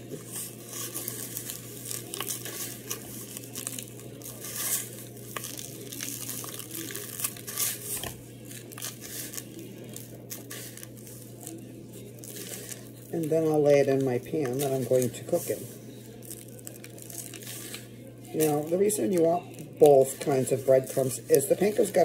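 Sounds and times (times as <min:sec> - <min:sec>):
dry crumbs rustling: 0:00.0 - 0:22.0
plastic gloves crinkling: 0:00.0 - 0:22.0.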